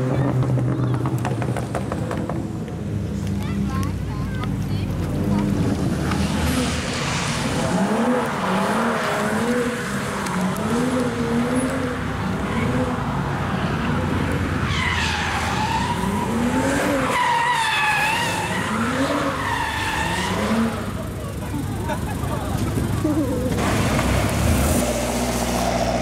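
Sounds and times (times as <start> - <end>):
car engine revving: 5.0 - 26.0
tyres squealing: 14.6 - 22.1.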